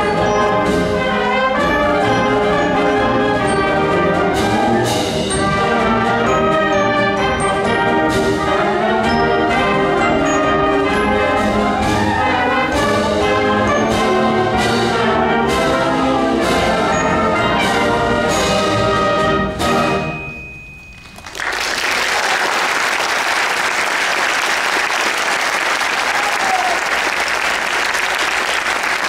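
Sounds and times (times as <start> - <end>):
concert band playing march: 0.0 - 20.4
audience applause: 21.0 - 29.0.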